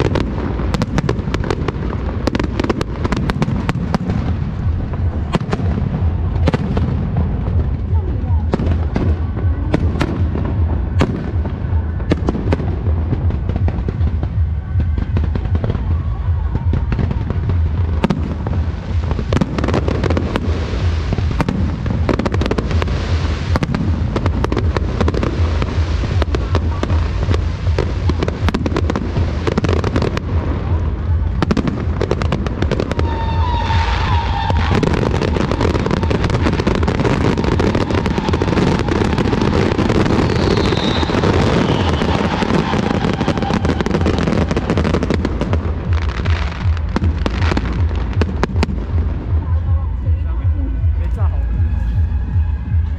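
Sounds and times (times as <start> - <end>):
deep rumble: 0.0 - 52.9
fireworks bursting and crackling: 0.0 - 52.9.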